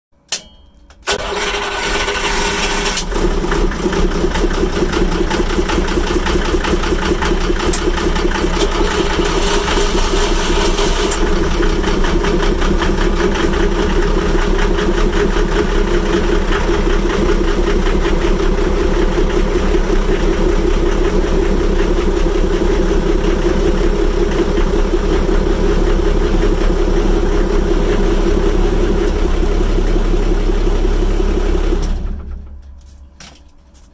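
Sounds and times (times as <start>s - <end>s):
diesel engine starting: 1.0s - 33.0s
diesel engines idling: 1.1s - 33.9s.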